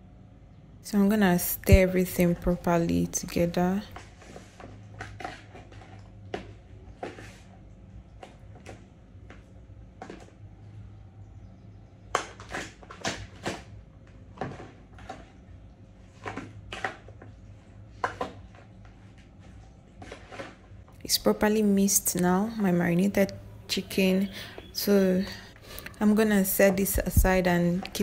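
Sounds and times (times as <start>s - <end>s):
chicken being stirred in marinade: 18.1s - 20.8s.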